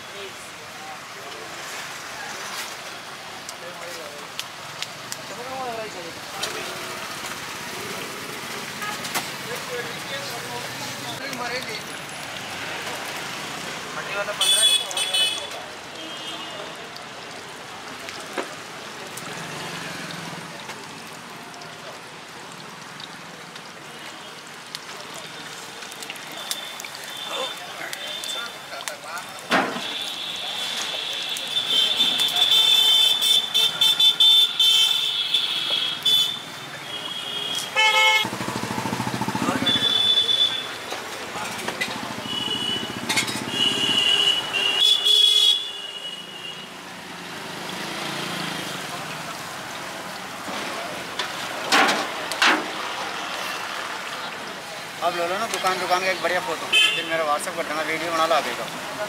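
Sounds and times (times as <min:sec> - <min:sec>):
food deep-frying in oil: 0:01.4 - 0:45.2
vehicle horn toots: 0:14.4 - 0:16.6, 0:29.8 - 0:38.4, 0:39.5 - 0:40.7, 0:42.2 - 0:46.6, 0:56.7 - 0:57.1
motorcycle engine running: 0:38.2 - 0:40.0
oil deep-frying hiss: 0:46.0 - 0:59.0.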